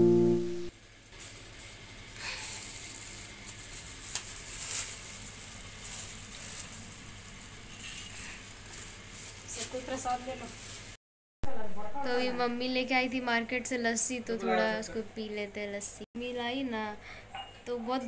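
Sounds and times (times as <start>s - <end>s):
harp-like music note: 0.0s - 0.7s.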